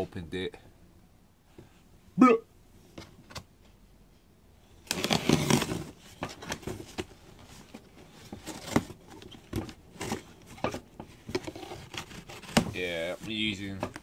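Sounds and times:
box cutter slicing packing tape: 4.9 - 5.8.

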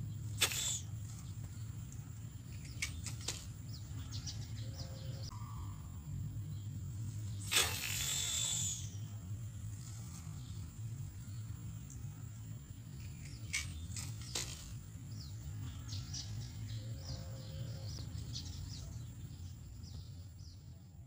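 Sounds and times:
high thin whine: 0.0 - 1.4, 7.0 - 10.7
small birds chirping: 0.0 - 21.0.

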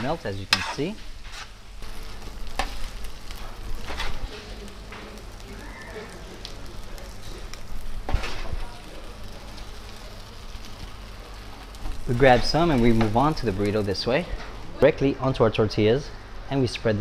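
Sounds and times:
metal spatulas scraping griddle: 0.0 - 4.5
food sizzling on griddle: 0.0 - 14.8.

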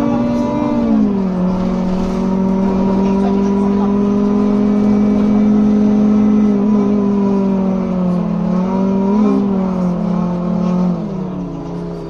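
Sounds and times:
bus cooling fans droning: 0.0 - 12.0
diesel engine: 0.0 - 12.0.

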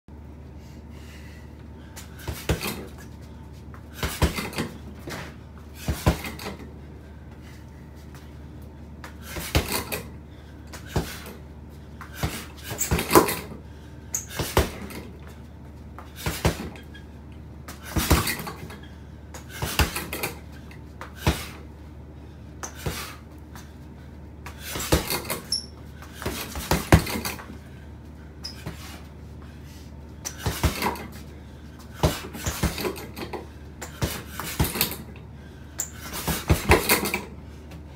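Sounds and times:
punches landing on heavy bag: 2.2 - 2.9, 4.0 - 6.6, 9.3 - 10.0, 12.1 - 13.5, 14.3 - 15.1, 16.2 - 16.8, 17.8 - 18.7, 19.5 - 20.4, 21.1 - 21.6, 24.6 - 25.5, 26.2 - 27.5, 30.4 - 31.2, 31.9 - 33.3, 33.9 - 35.0, 36.1 - 37.2.

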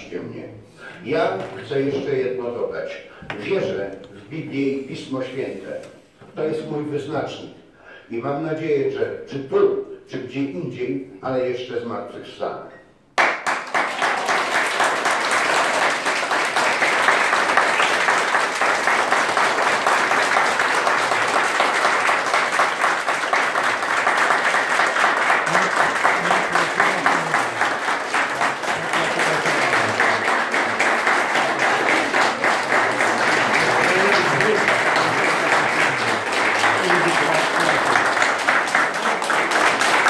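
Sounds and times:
audience applauding: 13.2 - 40.0.

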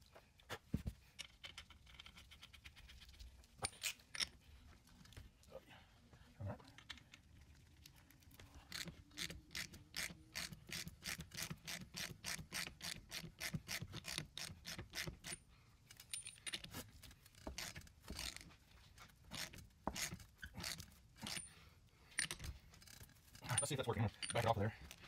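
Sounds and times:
hand ratchet clicking: 19.3 - 21.5.

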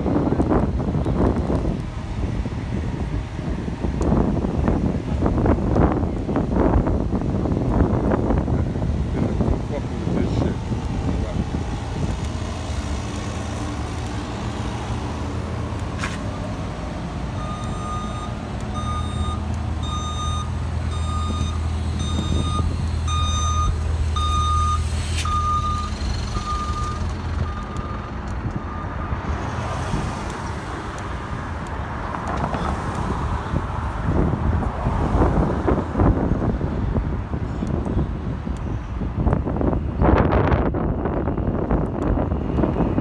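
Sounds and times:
street noise: 0.0 - 43.0
wind noise: 0.0 - 43.0
truck engine idling hum: 0.1 - 29.1
reversing alarm beeping: 17.4 - 29.2.

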